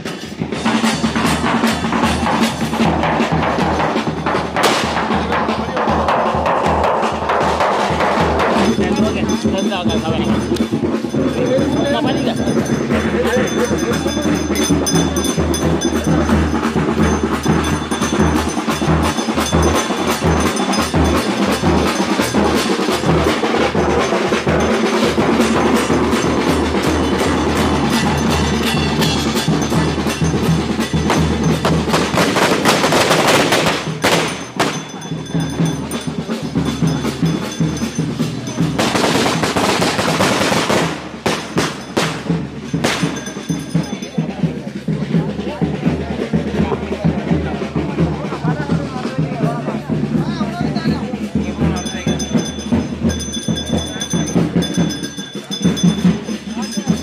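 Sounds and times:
drums beaten in fast rhythm: 0.0 - 57.0.

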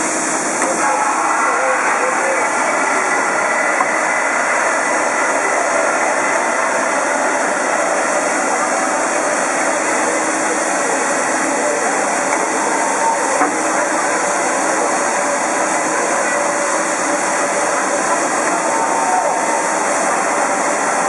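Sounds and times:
steam locomotive hissing steam: 0.0 - 21.0.

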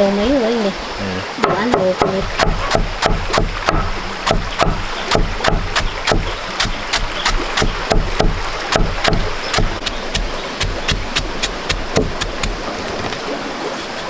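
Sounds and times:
knife chopping on wooden board: 1.4 - 12.6.

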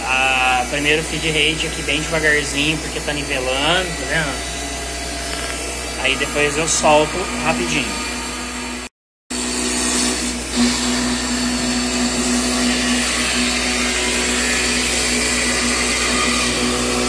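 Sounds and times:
milling machine motor tone: 0.0 - 17.0.

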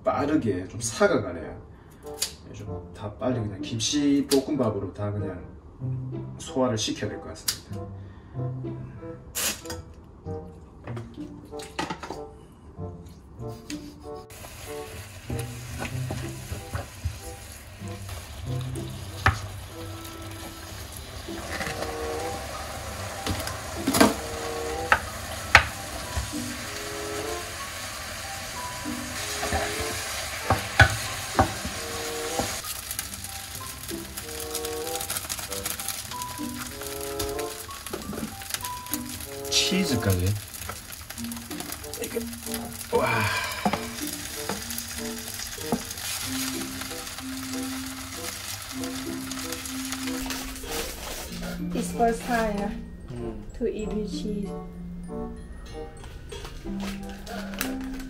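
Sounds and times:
soft background music: 0.0 - 58.0
meat sizzling in a pan: 14.3 - 51.2.

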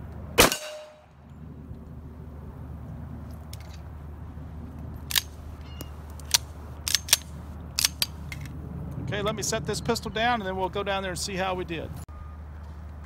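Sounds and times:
pistol metallic clicks: 5.0 - 8.5.

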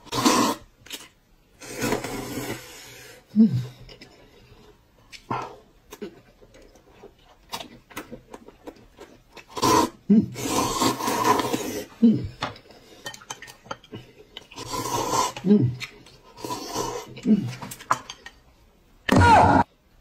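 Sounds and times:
person slurping noodles: 0.0 - 0.7, 1.6 - 3.8, 9.4 - 12.0, 14.5 - 17.6.

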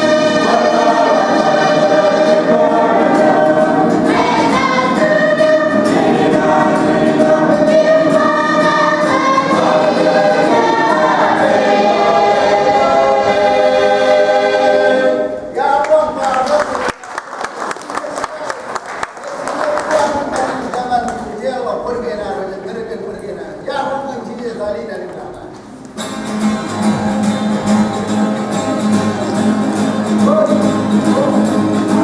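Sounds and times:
mixed choir singing in harmony: 0.0 - 15.6.

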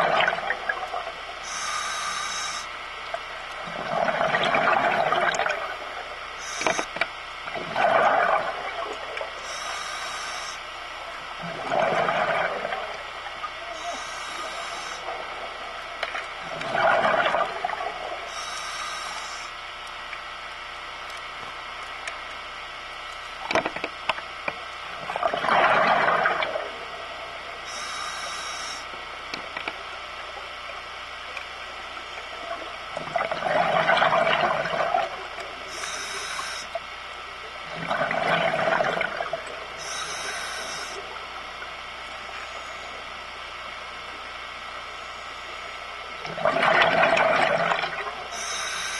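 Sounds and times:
exhaled bubbles gurgling: 0.0 - 19.5, 23.4 - 44.9, 45.5 - 48.9
regulator air hiss: 1.4 - 2.8, 6.4 - 7.0, 9.4 - 10.7, 13.6 - 15.2, 18.2 - 19.6, 27.6 - 28.9, 35.6 - 36.8, 39.8 - 41.2, 48.3 - 48.9.

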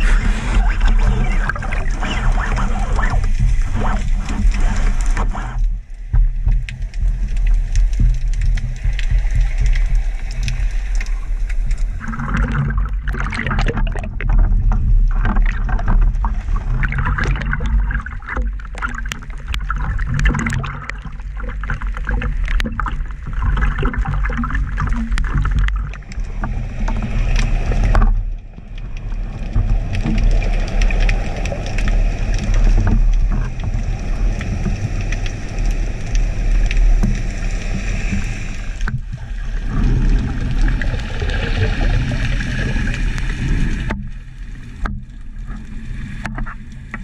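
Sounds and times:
low underwater rumble: 0.0 - 47.0
water sloshing against camera: 0.0 - 47.0
sharp water splashes: 6.7 - 28.1.

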